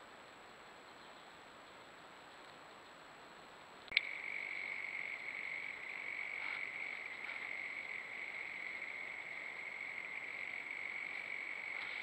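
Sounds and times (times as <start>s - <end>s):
chorus of frogs or insects: 3.9s - 12.0s.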